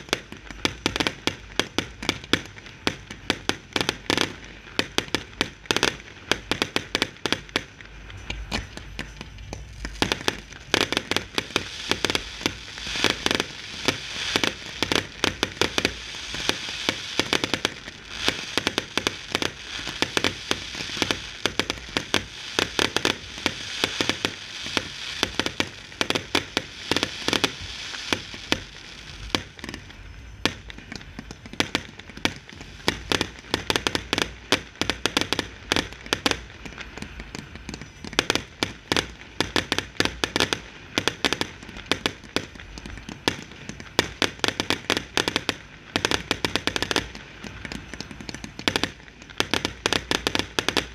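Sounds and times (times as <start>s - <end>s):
firework bangs: 0.0s - 50.9s
fireworks hissing and crackling: 0.0s - 50.9s
low rumble: 7.8s - 14.3s.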